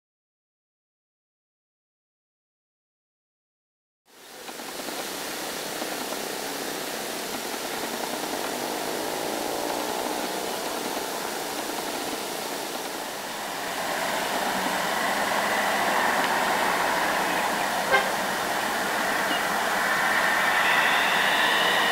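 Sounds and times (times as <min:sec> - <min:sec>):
passing vehicles: 0:07.8 - 0:21.9.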